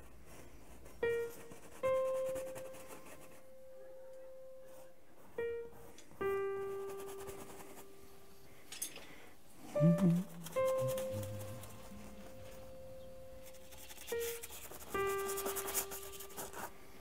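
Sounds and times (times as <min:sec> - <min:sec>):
slow sparse piano notes: 0:09.6 - 0:16.6.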